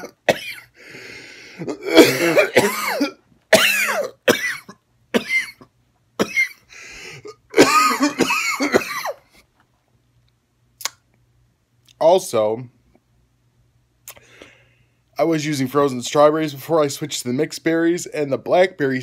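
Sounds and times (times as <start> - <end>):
man coughing and clearing throat: 0.0 - 0.8, 1.5 - 9.3.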